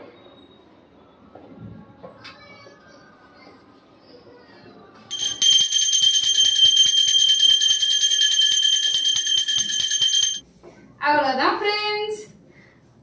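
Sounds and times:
small bell rung rapidly: 5.1 - 10.4.

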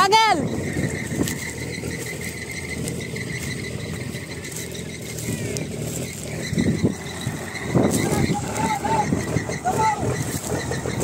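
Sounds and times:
truck engine rumbling: 0.0 - 11.0.

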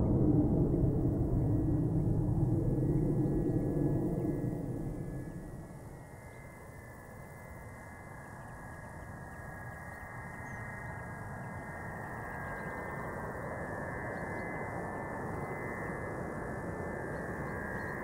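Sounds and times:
jet engines rushing and whining: 0.0 - 6.0.

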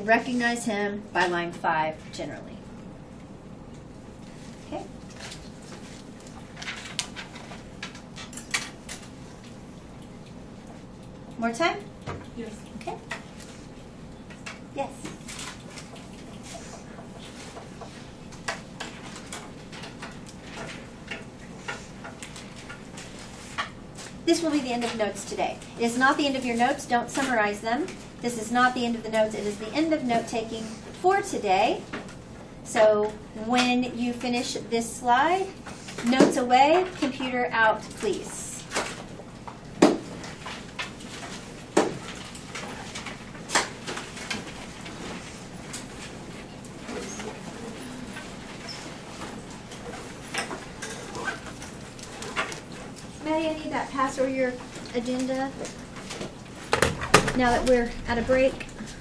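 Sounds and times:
steady room hum: 0.0 - 59.0
knocks and clunks on desks: 56.7 - 57.5.

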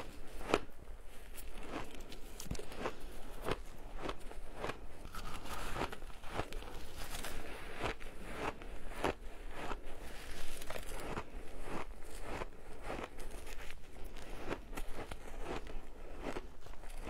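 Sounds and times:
shaved ice crunching: 5.0 - 8.5, 10.0 - 14.3.

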